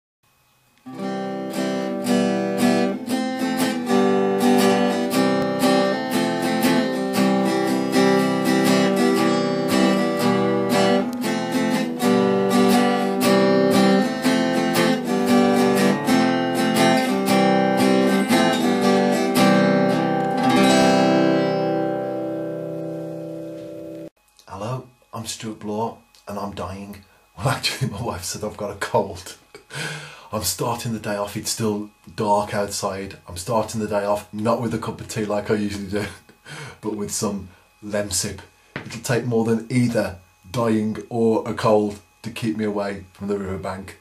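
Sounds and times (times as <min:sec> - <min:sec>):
acoustic guitar strummed chords: 0:00.8 - 0:24.1.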